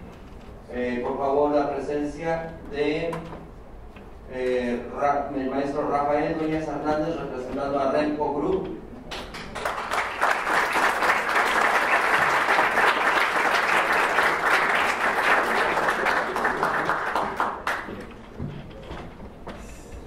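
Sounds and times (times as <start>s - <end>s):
audience applauding: 9.1s - 18.2s.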